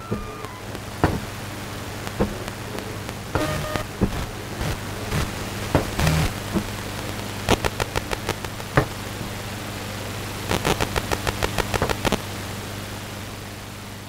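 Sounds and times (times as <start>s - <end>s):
low hum: 0.0s - 9.8s
steady hiss: 0.0s - 14.0s
sharp clicks and crackles: 2.0s - 9.4s, 10.5s - 12.2s.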